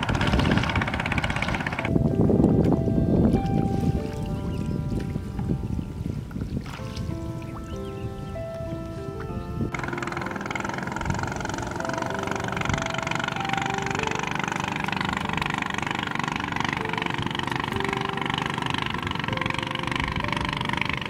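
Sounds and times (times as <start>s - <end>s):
engine idling: 0.0s - 2.2s, 9.7s - 21.0s
soft melodic background music: 0.0s - 21.0s.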